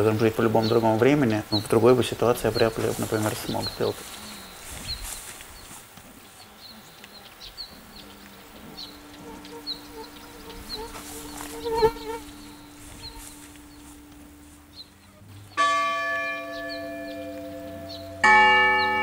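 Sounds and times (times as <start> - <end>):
steady low hum: 7.8 - 15.2
deep church bell ringing: 12.3 - 19.0
church bell ringing: 15.6 - 19.0.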